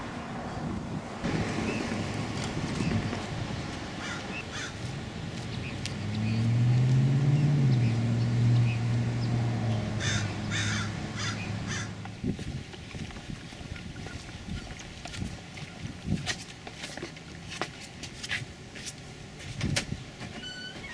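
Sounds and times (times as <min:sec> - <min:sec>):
crows cawing: 0:04.0 - 0:04.8, 0:10.0 - 0:12.0.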